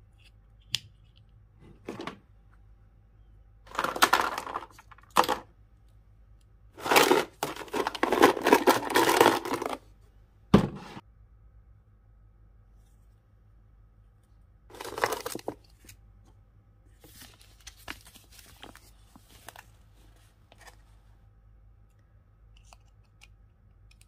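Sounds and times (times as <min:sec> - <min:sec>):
paper packaging crinkling: 0:03.7 - 0:05.4, 0:06.8 - 0:09.9, 0:14.7 - 0:16.0, 0:17.0 - 0:19.8.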